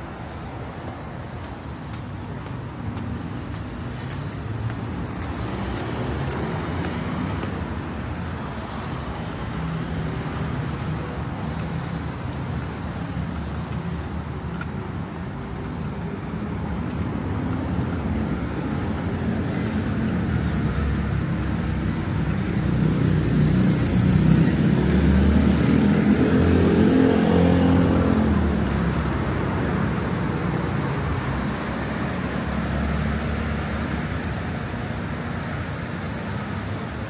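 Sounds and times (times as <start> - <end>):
road traffic: 0.0 - 37.0.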